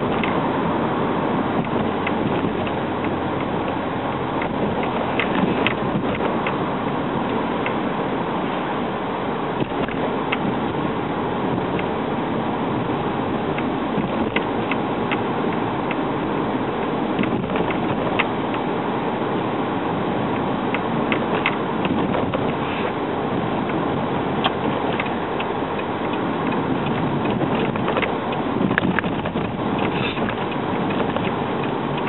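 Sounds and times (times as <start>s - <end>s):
road and engine noise in car cabin: 0.0s - 32.0s
light ticks and clicks: 24.4s - 32.0s.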